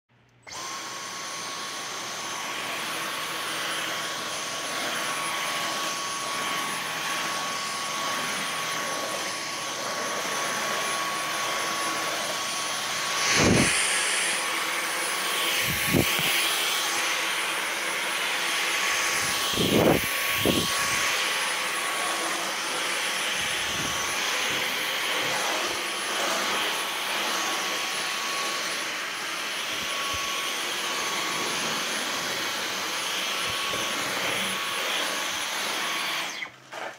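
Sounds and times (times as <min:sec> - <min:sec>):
vacuum cleaner motor whine: 0:00.4 - 0:36.9.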